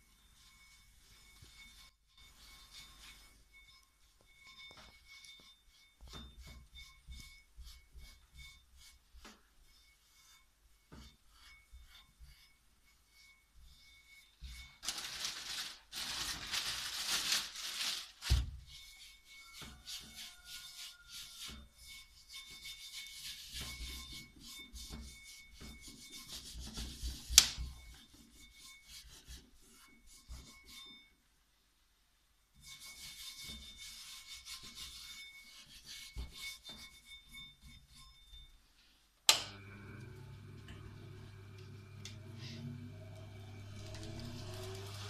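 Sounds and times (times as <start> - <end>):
electric motor humming: 39.6 - 45.0
hands scraping on grinding disc: 39.9 - 45.0.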